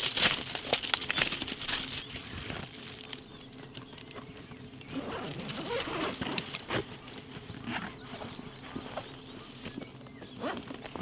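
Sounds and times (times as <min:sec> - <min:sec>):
small clicks and scrapes: 0:00.0 - 0:09.9.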